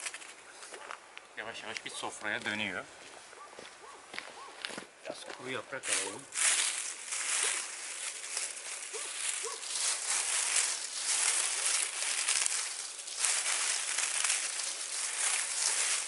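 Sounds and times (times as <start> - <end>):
dry leaves rustling and crunching: 0.0 - 0.9, 5.4 - 16.0.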